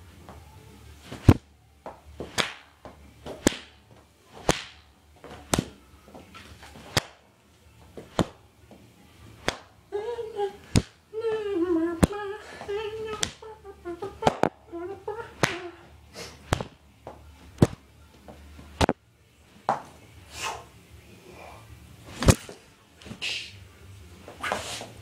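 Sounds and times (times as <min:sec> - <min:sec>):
cloth cracking like a whip: 0:01.1 - 0:01.4, 0:02.2 - 0:02.7, 0:03.3 - 0:04.8, 0:05.4 - 0:05.8, 0:06.6 - 0:07.2, 0:08.1 - 0:08.4, 0:09.4 - 0:09.7, 0:16.4 - 0:16.8, 0:22.1 - 0:23.5
person humming: 0:09.9 - 0:16.4.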